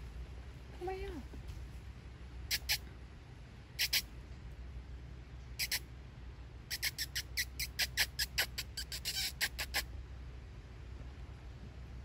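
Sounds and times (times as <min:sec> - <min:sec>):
person making squeaky kissing calls: 0:02.5 - 0:02.9, 0:03.8 - 0:04.1, 0:05.6 - 0:05.9, 0:06.7 - 0:09.9.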